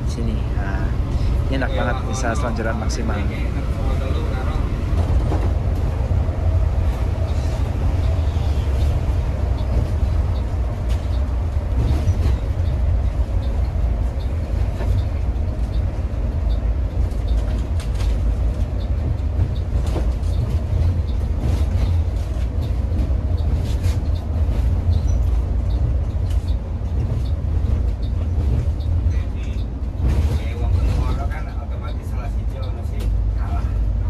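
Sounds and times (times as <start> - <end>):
coach engine and road rumble: 0.0 - 34.0.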